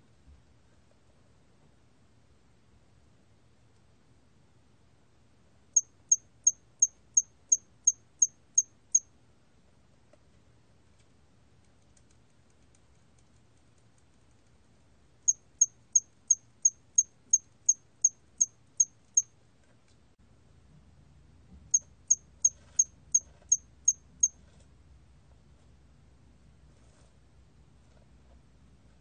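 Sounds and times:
cricket chirping: 0:05.8 - 0:09.1, 0:15.3 - 0:19.3.

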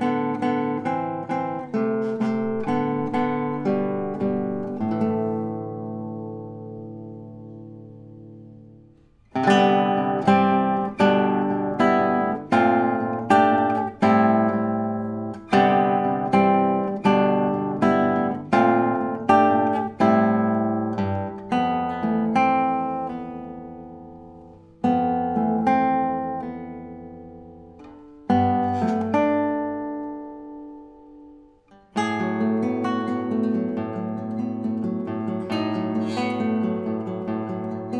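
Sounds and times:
classical guitar fingerstyle: 0:00.0 - 0:37.9.

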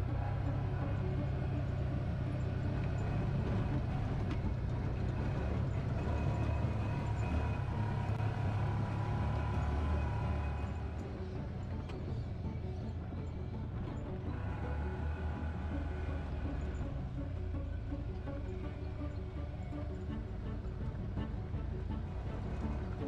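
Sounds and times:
atv engine running: 0:00.0 - 0:23.0.

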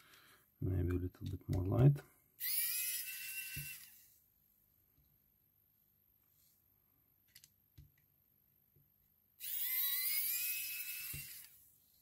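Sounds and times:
electric screwdriver whirring: 0:02.4 - 0:04.0, 0:09.4 - 0:11.6.

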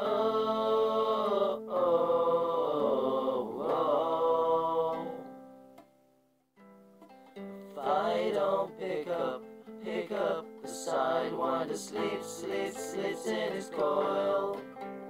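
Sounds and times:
strummed acoustic guitar: 0:06.6 - 0:15.0.

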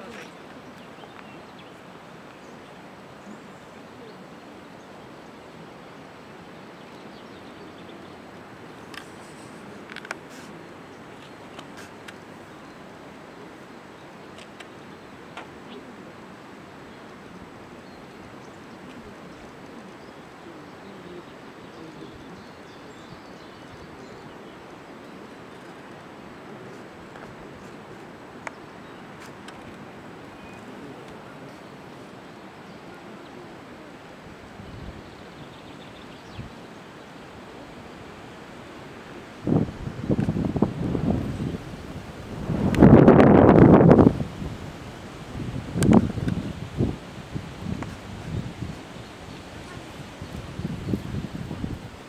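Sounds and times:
background hiss: 0:00.0 - 0:52.0
outdoor background noise: 0:00.0 - 0:52.0
faint bird chirps: 0:30.3 - 0:31.8.

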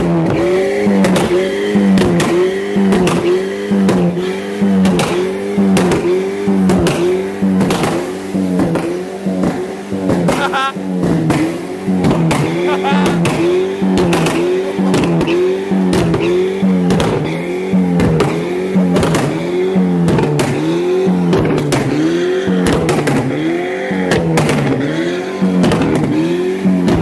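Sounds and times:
car engine revving: 0:00.0 - 0:27.0
exhaust pops and crackles: 0:00.0 - 0:27.0.

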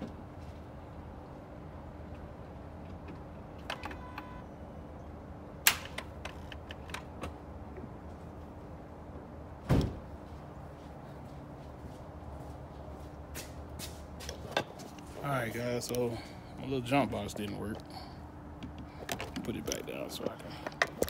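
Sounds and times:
steady low hum: 0:00.0 - 0:21.0
clicks and knocks of handling: 0:18.6 - 0:21.0.

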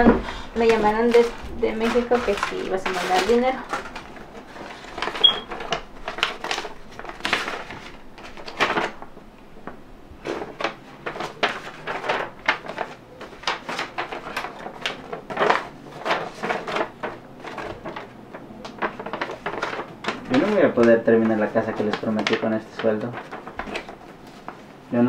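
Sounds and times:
paper and envelopes rustling: 0:00.0 - 0:25.0.

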